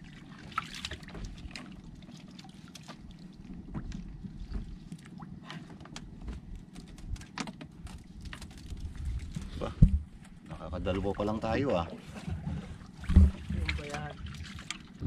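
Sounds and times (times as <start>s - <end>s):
water splashing and lapping: 0.0s - 15.0s
steady low rumble: 8.0s - 11.6s
short splashes: 11.8s - 15.0s.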